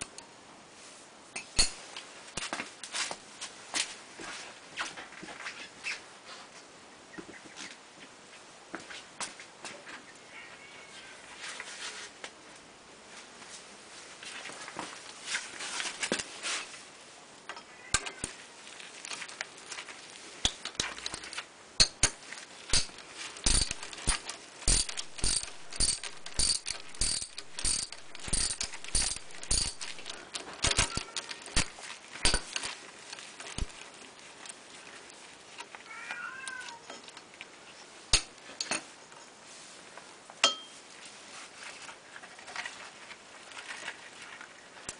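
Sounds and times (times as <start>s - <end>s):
socket wrench ratchet clicks: 22.7s - 31.0s.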